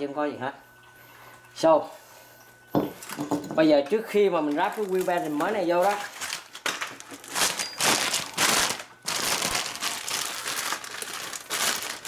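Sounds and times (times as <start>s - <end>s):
plastic bag crinkling: 4.4s - 12.0s.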